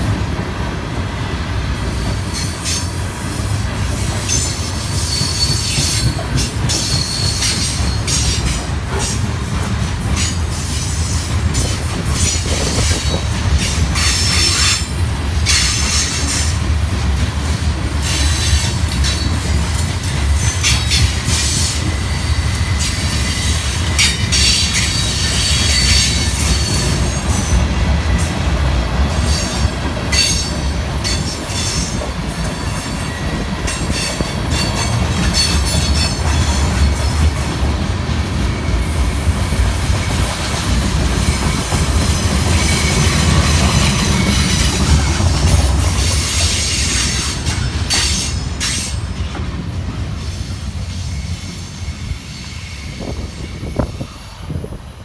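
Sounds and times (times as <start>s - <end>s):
freight train rumbling past: 0.0s - 55.0s
train wheels squealing: 0.9s - 16.6s, 17.8s - 55.0s
wheels clicking over rail joints: 2.1s - 21.9s.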